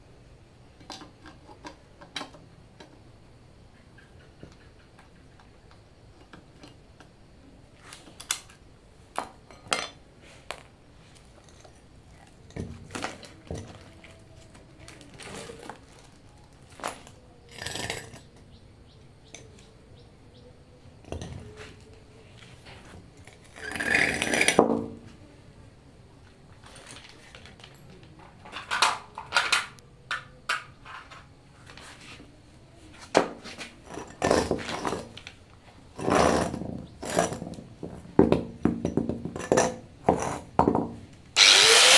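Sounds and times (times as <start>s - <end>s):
heavy metal scraping on concrete: 17.5s - 18.3s, 23.2s - 24.6s, 36.0s - 37.6s.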